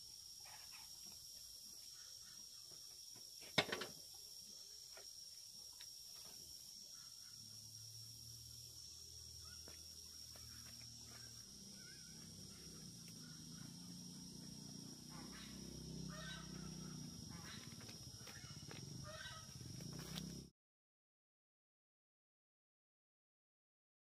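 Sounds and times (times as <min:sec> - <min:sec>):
steady high-pitched whine: 0:00.0 - 0:20.5
faint animal calls: 0:06.8 - 0:20.5.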